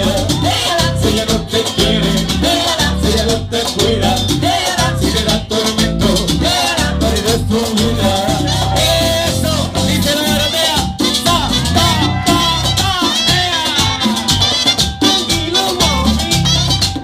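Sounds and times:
people singing: 0:00.0 - 0:14.3
bass: 0:00.0 - 0:17.0
congas: 0:00.0 - 0:17.0
keyboard: 0:00.0 - 0:17.0
salsa band playing: 0:00.0 - 0:17.0.

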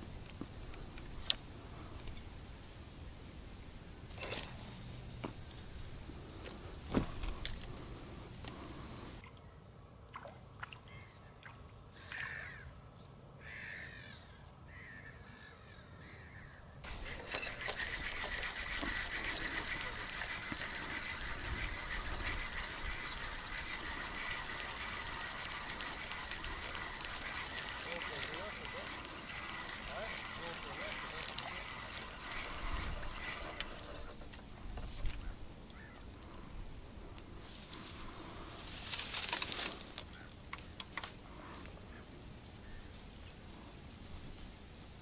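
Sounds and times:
dry reeds rustling and crackling: 0:16.8 - 0:45.0.

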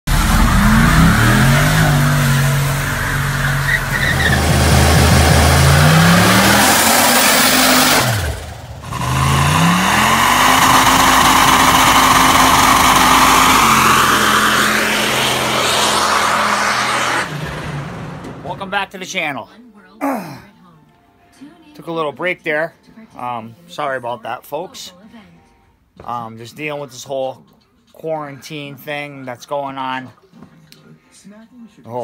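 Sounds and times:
car engines revving: 0:00.1 - 0:18.8
tyres squealing on pavement: 0:00.3 - 0:05.0.

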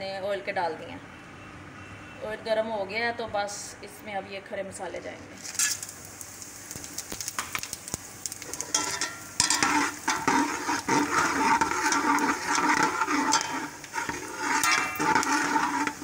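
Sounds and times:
spices sizzling in hot oil: 0:05.3 - 0:16.0
metal spoon scraping a pot: 0:08.4 - 0:16.0.

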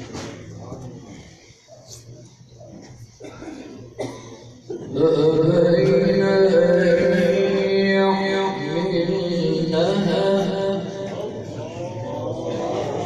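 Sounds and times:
man reciting melodically: 0:04.7 - 0:13.0.

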